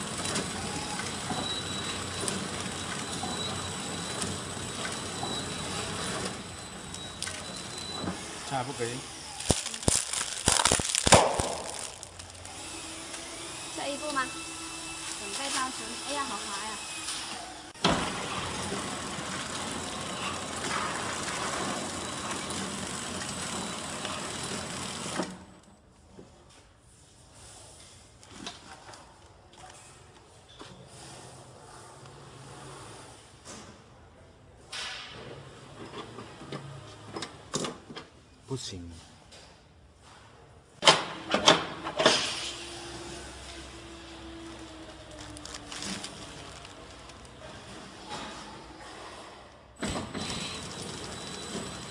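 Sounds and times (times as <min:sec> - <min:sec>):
packaging machine running: 0:00.0 - 0:25.5, 0:42.2 - 0:49.2, 0:49.8 - 0:51.9.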